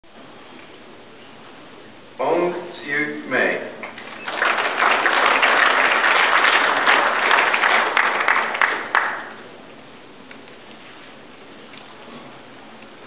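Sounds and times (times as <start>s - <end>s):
audience applauding: 3.8s - 9.6s.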